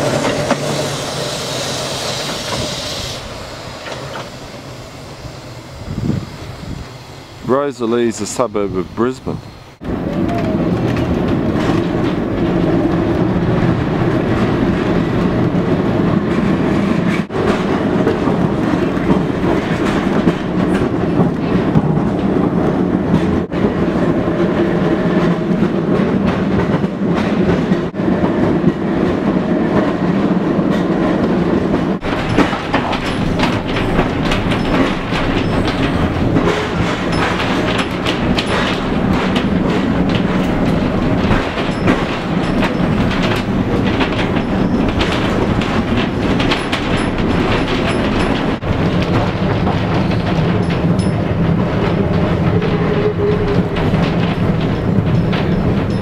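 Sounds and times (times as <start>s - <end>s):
tram wheels rumbling on rail: 0.0s - 56.0s
clicks and rattles: 32.0s - 52.8s, 53.4s - 56.0s.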